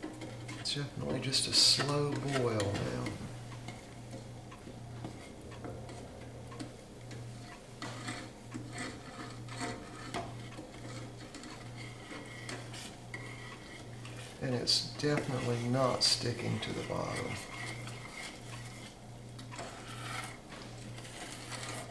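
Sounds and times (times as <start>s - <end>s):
wooden spoon scraping a pot: 0.0s - 4.3s, 5.0s - 21.9s
low pulsing hum: 2.6s - 9.6s.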